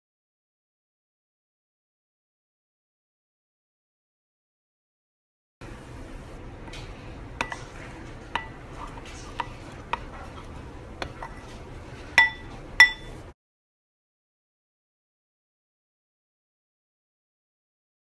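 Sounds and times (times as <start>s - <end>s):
spoon stirring mixture: 5.6s - 13.3s
spoon clinking against glass: 8.3s - 10.1s, 12.2s - 13.2s.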